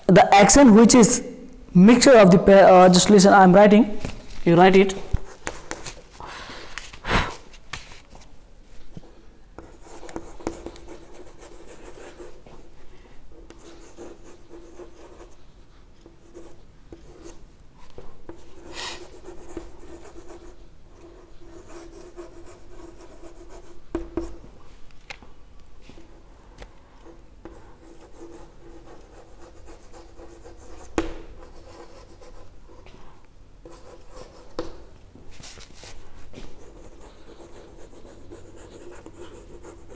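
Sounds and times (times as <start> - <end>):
chalk scratching on chalkboard: 13.5 - 15.4, 18.3 - 24.4, 27.0 - 32.9, 33.6 - 34.8, 35.5 - 39.9.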